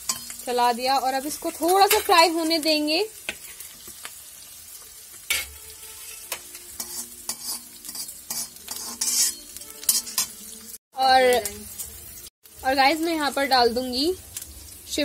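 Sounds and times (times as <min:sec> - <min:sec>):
metal spatula scraping a pan: 0:00.0 - 0:00.6, 0:01.4 - 0:02.6, 0:03.2 - 0:03.9, 0:05.2 - 0:10.8
vegetables sizzling in hot oil: 0:00.0 - 0:15.0.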